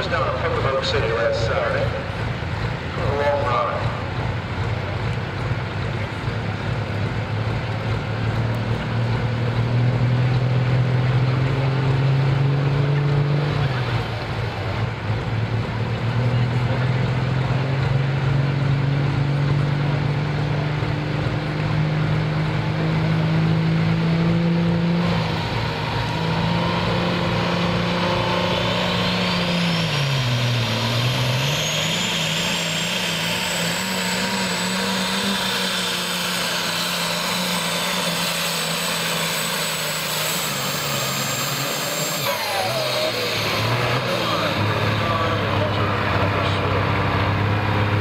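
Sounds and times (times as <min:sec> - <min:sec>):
diesel engine at high revs: 0:00.0 - 0:48.0
turbocharger whistle: 0:25.1 - 0:45.9.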